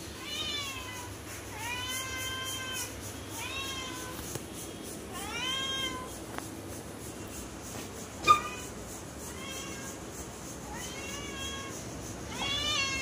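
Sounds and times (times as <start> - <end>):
cat meowing: 0.2 - 4.2, 5.2 - 6.1, 8.2 - 8.7, 9.3 - 10.0, 10.6 - 13.0.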